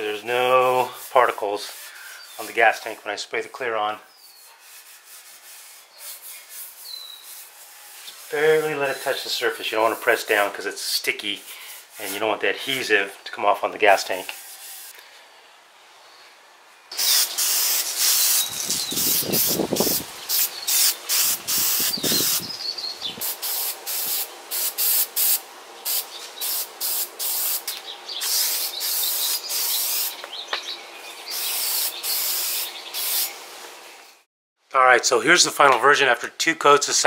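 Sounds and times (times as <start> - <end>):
aerosol spray can hissing: 14.5 - 15.0, 17.0 - 22.6, 23.2 - 30.2, 31.3 - 33.4.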